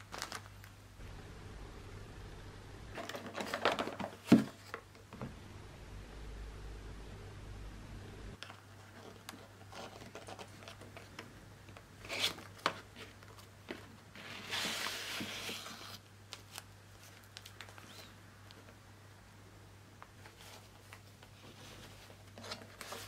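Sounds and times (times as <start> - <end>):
paper rustling: 0.0 - 0.8, 3.0 - 5.0, 8.5 - 11.2, 20.2 - 23.0.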